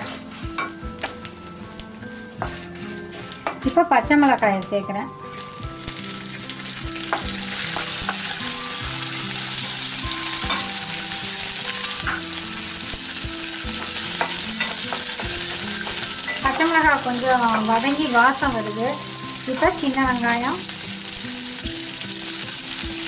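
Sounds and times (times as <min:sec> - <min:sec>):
wooden spatula scraping a pan: 0:00.0 - 0:00.8, 0:02.4 - 0:03.6
chillies sizzling in hot oil: 0:00.0 - 0:23.0.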